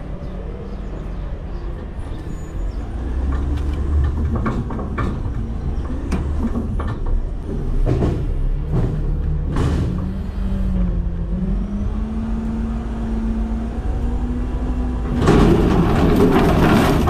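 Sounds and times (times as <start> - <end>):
garbage truck engine rumble: 0.0 - 17.0
metal clanks and knocks: 3.3 - 10.2, 15.0 - 17.0.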